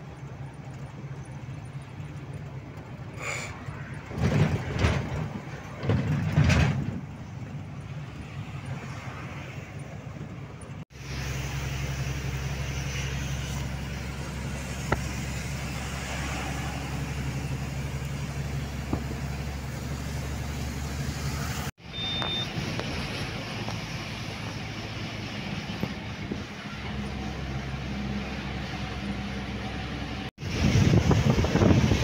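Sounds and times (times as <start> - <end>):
diesel truck engine running: 0.0 - 32.0
road and wind noise: 0.0 - 32.0
short high beep: 21.9 - 22.5.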